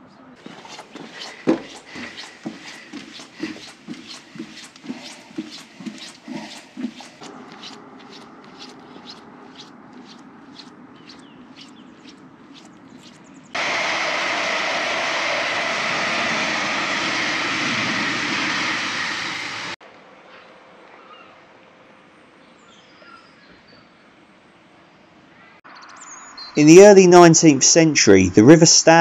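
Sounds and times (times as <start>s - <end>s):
electric train passing: 0.4s - 11.2s, 13.6s - 19.8s
footsteps on paved path: 0.4s - 13.5s.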